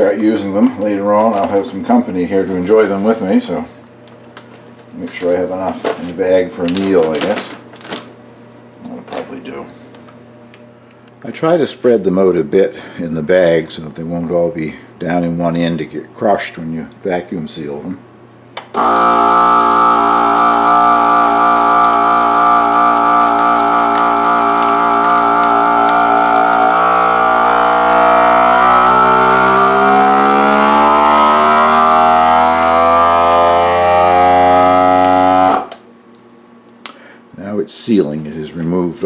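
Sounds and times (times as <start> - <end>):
vacuum sealer pump humming: 0.0 - 12.1, 18.6 - 36.2.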